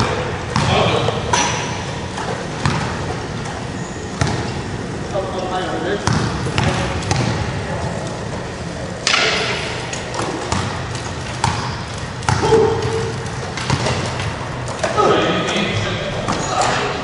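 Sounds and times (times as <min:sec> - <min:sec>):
basketball bouncing: 0:00.0 - 0:03.2, 0:04.2 - 0:04.5, 0:06.0 - 0:07.6, 0:10.2 - 0:14.4.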